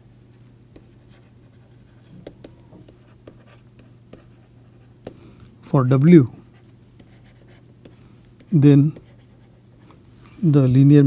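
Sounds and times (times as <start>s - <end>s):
faint low hum: 0.0s - 11.0s
stylus scratching on tablet: 0.7s - 5.2s, 6.5s - 10.0s.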